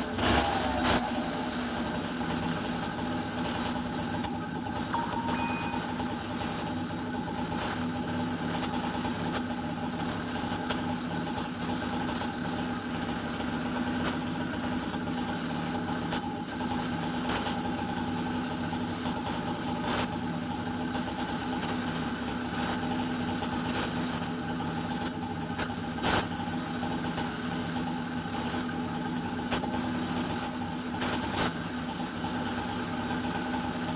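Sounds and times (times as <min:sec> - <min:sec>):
two-stroke engine idling: 0:00.0 - 0:33.9.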